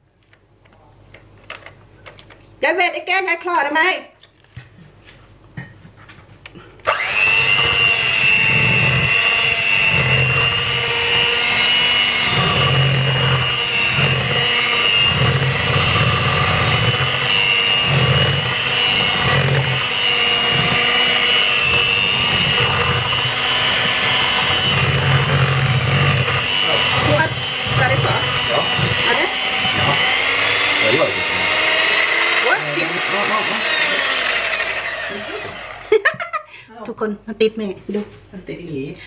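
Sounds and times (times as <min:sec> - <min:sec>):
electric hand mixer whining: 0:06.8 - 0:36.5.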